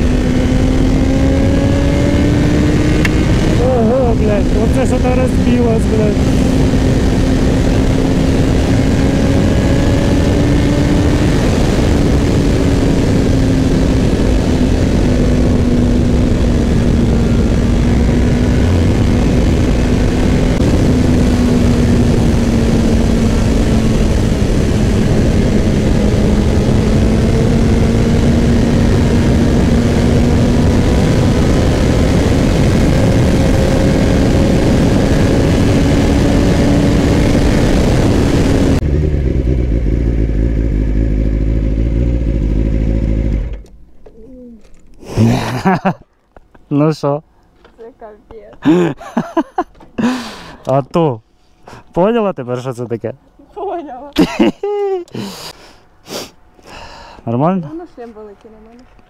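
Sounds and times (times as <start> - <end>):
wind rushing over microphone: 0.0 - 39.9
motorcycle engine cruising: 0.0 - 46.7.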